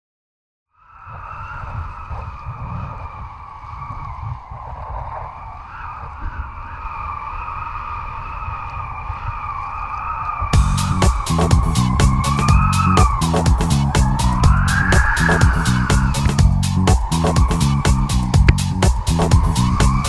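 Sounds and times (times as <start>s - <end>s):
wind rumbling on microphone: 0.8s - 20.0s
high whistle: 10.6s - 20.0s.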